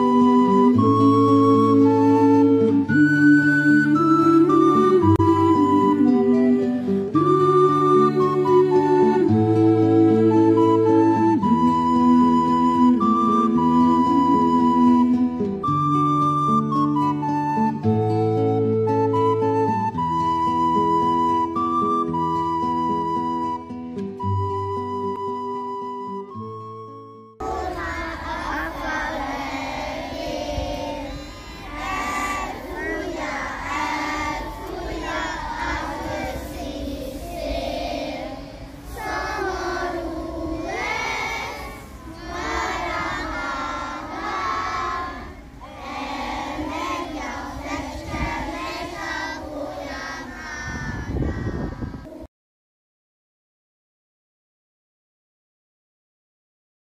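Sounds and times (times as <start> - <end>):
soft instrumental music: 0.0 - 37.0
children singing: 27.4 - 50.8.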